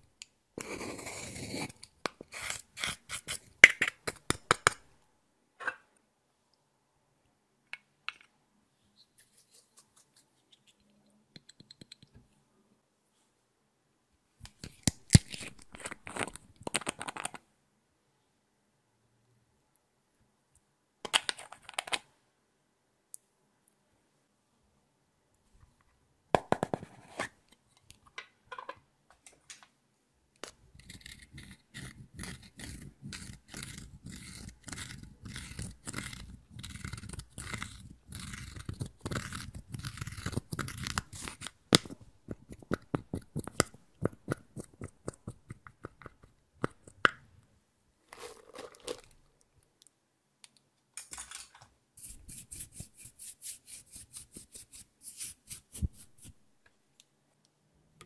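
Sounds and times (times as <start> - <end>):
makeup brush strokes: 9.1 - 11.0, 52.0 - 56.4
powder crunching and scraping: 48.1 - 49.2.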